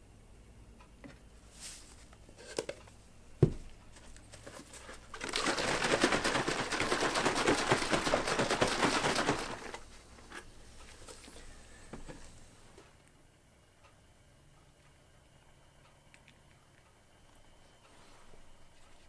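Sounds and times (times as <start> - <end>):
canister thumping on table: 3.4 - 3.7
plastic jug being shaken: 4.3 - 10.0.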